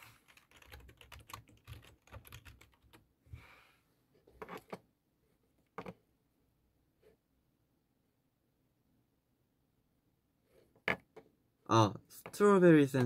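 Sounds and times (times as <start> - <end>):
faint keyboard typing: 0.0 - 3.1.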